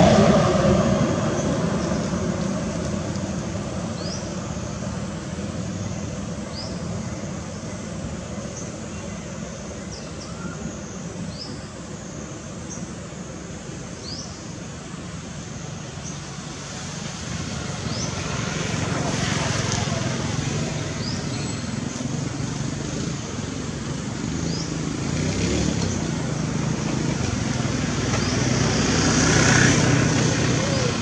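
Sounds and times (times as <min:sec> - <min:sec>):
vehicle passing: 0:00.0 - 0:04.3, 0:16.3 - 0:31.0
motor traffic: 0:00.0 - 0:31.0.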